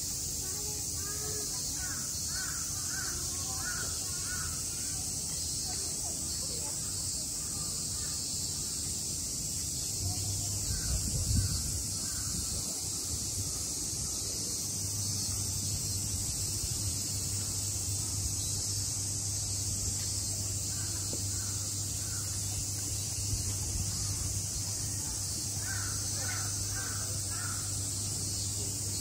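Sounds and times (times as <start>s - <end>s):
cicada chorus drone: 0.0s - 29.0s
crows cawing: 25.6s - 27.7s.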